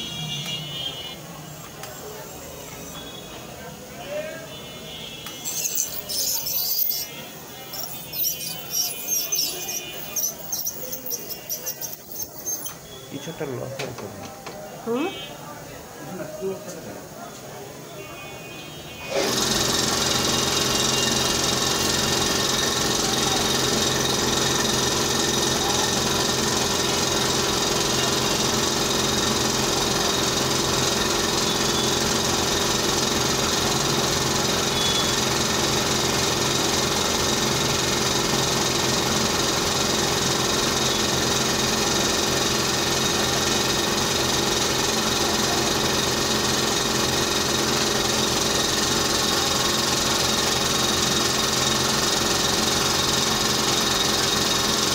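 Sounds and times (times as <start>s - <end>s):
dental motor humming: 1.4s - 3.3s, 5.3s - 13.3s.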